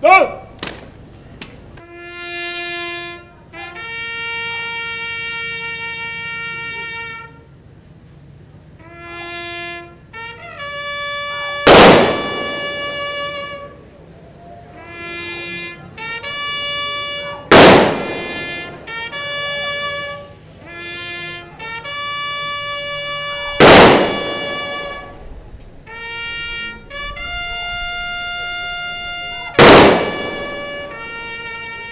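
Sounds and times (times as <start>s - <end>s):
trumpet playing long notes: 1.8s - 7.7s, 8.7s - 31.9s
gun salute shots with echo: 11.7s - 13.5s, 17.5s - 18.8s, 23.6s - 25.1s, 29.6s - 31.1s.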